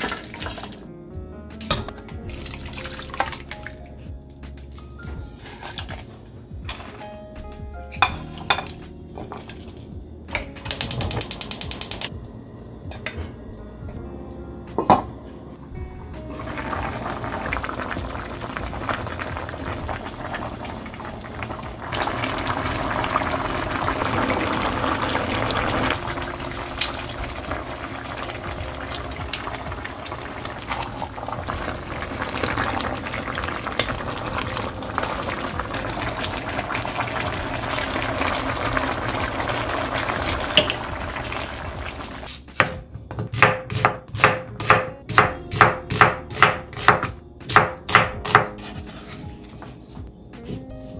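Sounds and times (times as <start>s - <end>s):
pot bubbling and crackling: 0.0s - 0.9s, 1.7s - 7.1s, 8.0s - 12.1s, 16.2s - 42.5s
knife chopping on cutting board: 42.6s - 49.2s.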